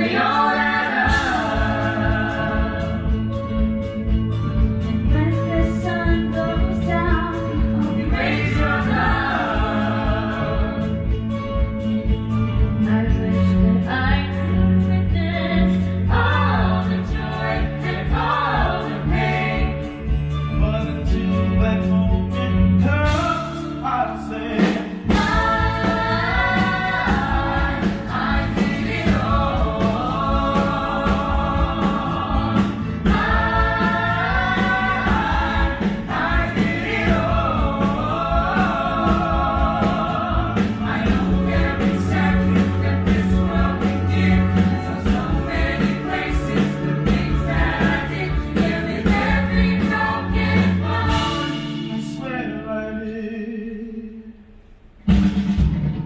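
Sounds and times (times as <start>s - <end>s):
cast singing together: 0.0s - 3.3s, 8.0s - 10.9s, 25.0s - 51.7s
music with steady beat: 0.0s - 23.8s, 24.6s - 52.0s.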